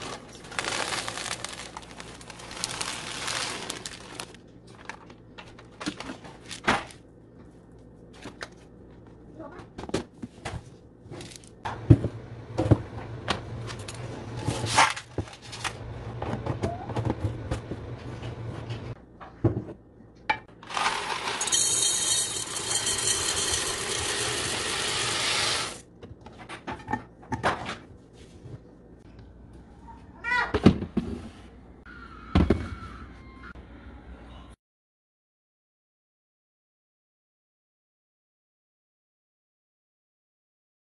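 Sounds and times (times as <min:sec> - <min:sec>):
dry pasta poured into glass jar: 0:00.0 - 0:04.2, 0:20.7 - 0:25.8.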